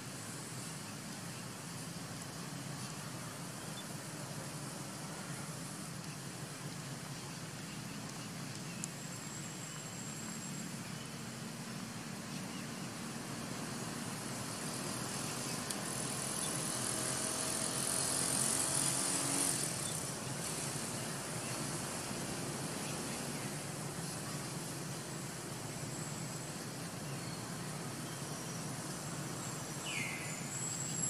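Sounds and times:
high hiss: 0.0s - 31.0s.

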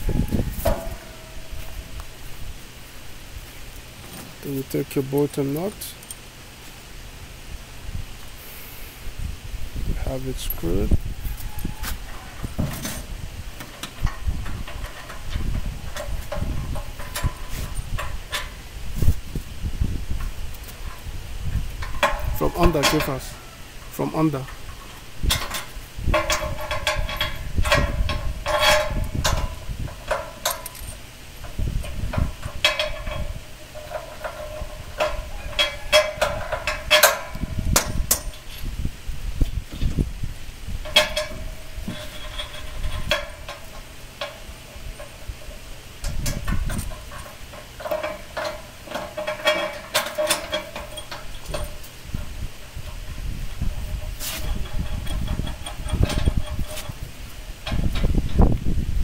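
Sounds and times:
metal tools clinking on steel: 4.0s - 6.3s, 10.1s - 18.7s, 20.2s - 38.7s, 40.8s - 58.4s.

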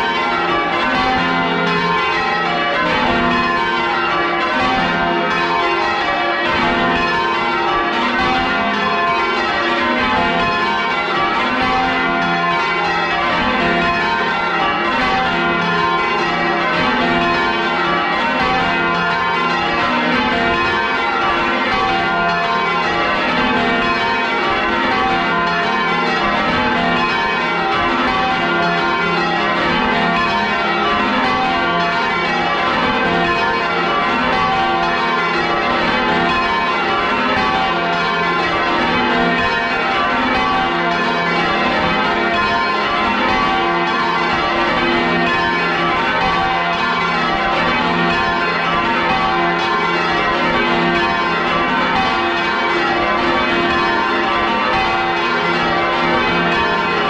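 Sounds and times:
church bells ringing: 0.0s - 57.0s.

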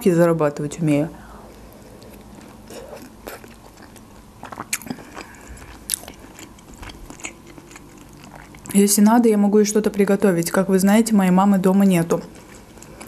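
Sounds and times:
person chewing food: 1.5s - 8.7s, 12.3s - 13.0s.

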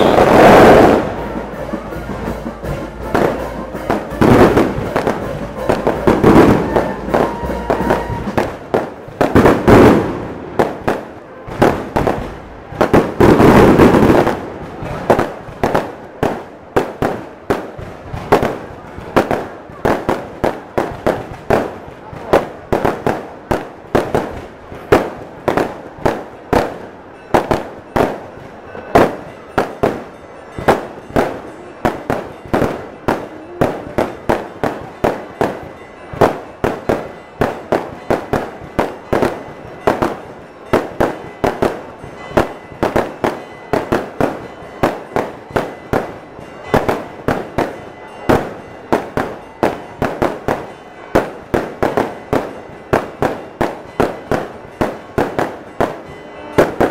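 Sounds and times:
fireworks bangs and cracks: 0.0s - 56.9s.

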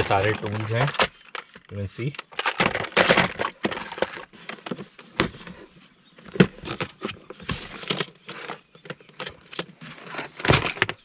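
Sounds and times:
tools rattling in toolbox: 0.0s - 4.9s
toolbox lid shutting and latching: 10.1s - 11.0s.

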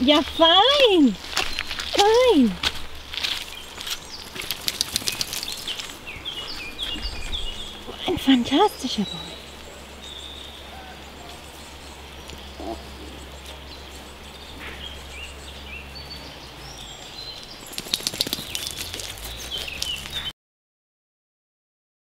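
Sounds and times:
dog walking on loose pebbles: 0.0s - 9.8s, 16.6s - 20.3s
small birds chirping: 0.0s - 20.3s.

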